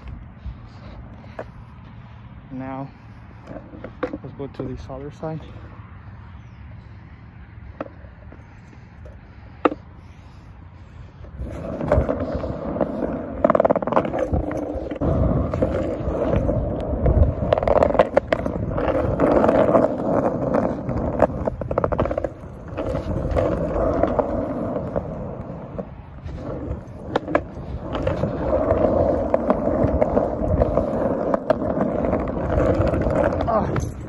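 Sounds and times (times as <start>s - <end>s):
skateboard wheels rolling on concrete: 0.0s - 34.0s
skateboard clacks: 11.4s - 34.0s.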